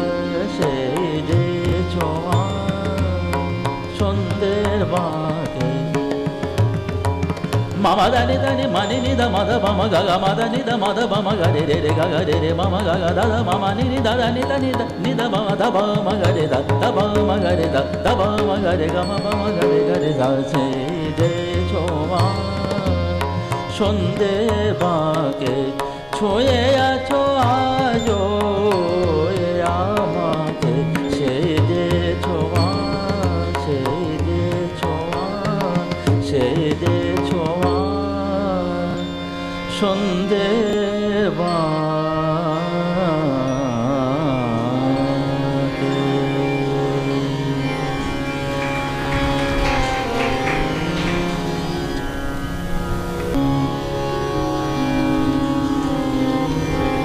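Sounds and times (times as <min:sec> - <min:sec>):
man singing melismatic phrases: 0:00.0 - 0:06.6, 0:07.8 - 0:39.1
harmonium: 0:00.0 - 0:57.0
tabla: 0:00.0 - 0:57.0
tanpura drone: 0:00.0 - 0:57.0.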